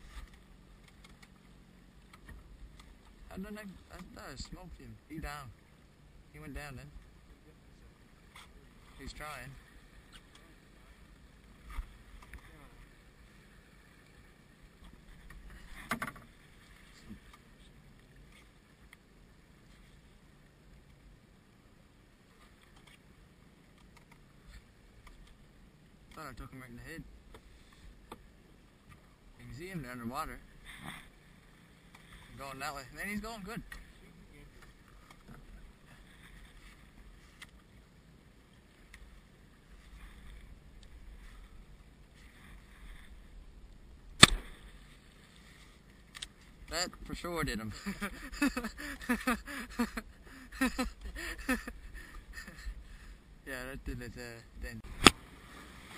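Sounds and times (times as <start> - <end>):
boat engine low rumble: 0.0 - 55.9
sea noise: 0.0 - 55.9
soft water noise: 0.0 - 55.9
light clicks: 46.1 - 46.5.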